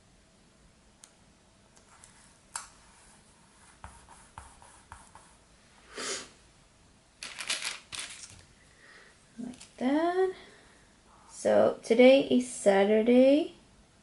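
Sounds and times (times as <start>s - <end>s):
hand brushing on paper: 2.0s - 5.5s.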